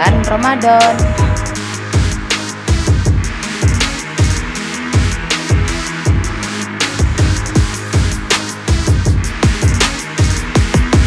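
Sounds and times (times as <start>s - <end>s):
crisp percussion hits: 0.0s - 2.4s
deep kick drums: 0.0s - 6.4s
electronic music: 0.0s - 11.0s.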